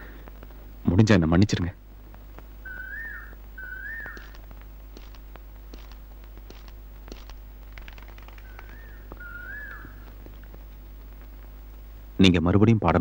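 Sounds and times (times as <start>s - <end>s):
low steady hum: 0.0s - 13.0s
sliding whistled calls: 2.6s - 4.5s, 7.9s - 10.2s.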